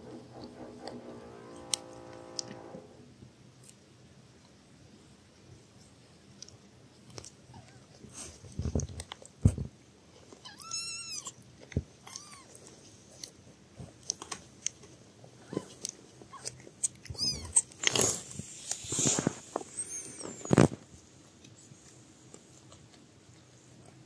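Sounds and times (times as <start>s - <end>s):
kittens suckling: 13.9s - 20.9s
kitten mewing: 15.4s - 18.2s
rustling of fur and cloth: 17.3s - 21.8s.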